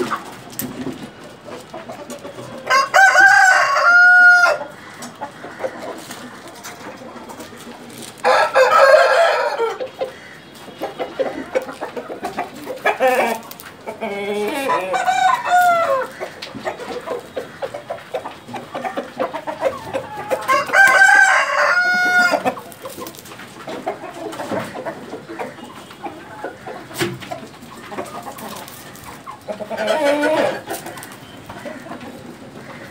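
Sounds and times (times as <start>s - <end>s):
chickens clucking: 0.0s - 32.9s
rooster crowing: 2.6s - 4.8s, 8.2s - 9.9s, 14.4s - 16.2s, 20.0s - 22.6s.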